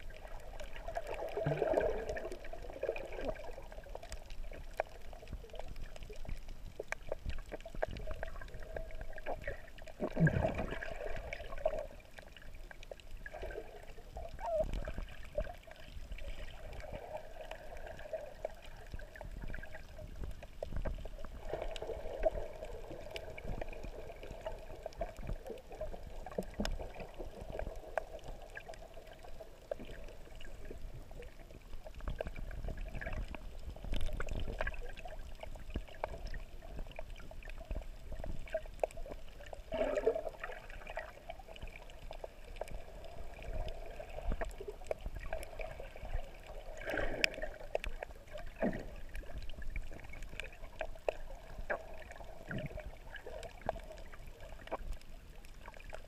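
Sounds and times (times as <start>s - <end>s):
muffled underwater water noise: 0.0s - 56.0s
water gurgles: 0.0s - 56.0s.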